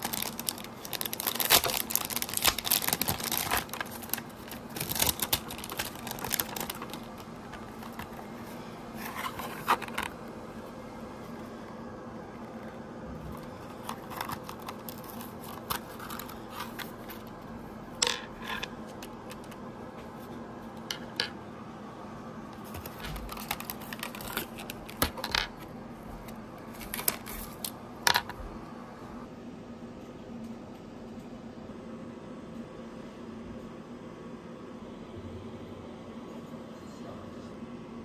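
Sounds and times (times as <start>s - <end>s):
cardboard rustles: 0.0s - 10.2s, 13.2s - 17.3s, 22.6s - 25.3s
steady low hum: 0.0s - 38.0s.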